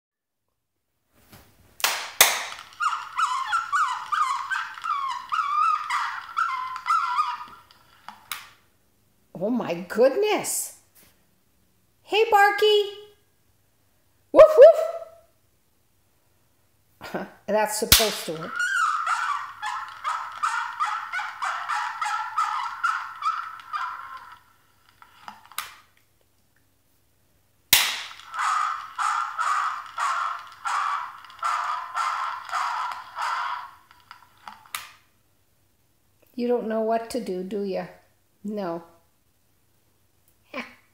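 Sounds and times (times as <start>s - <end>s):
toy dog electronic yaps: 2.4s - 8.6s, 18.0s - 25.8s, 27.9s - 35.0s
toy clicks: 28.0s - 35.0s.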